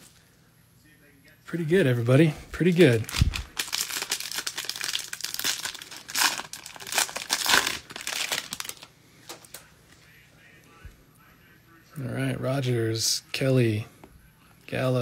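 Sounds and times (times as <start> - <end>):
foil wrapper tearing and crinkling: 2.8 - 8.9.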